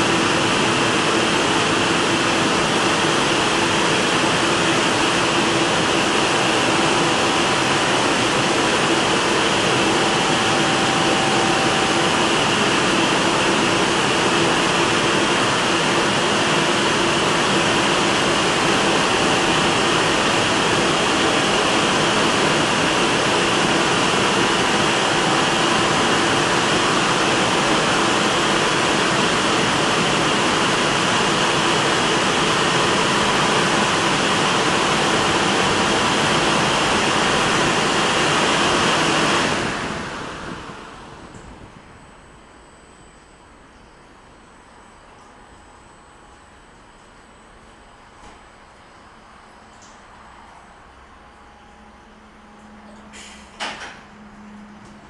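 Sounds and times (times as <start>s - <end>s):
faint motor hum: 0.0s - 38.0s.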